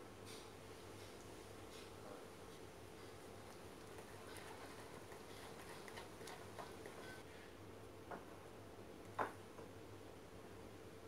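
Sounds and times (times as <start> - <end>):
spatula stirring icing in bowl: 3.4 - 7.2.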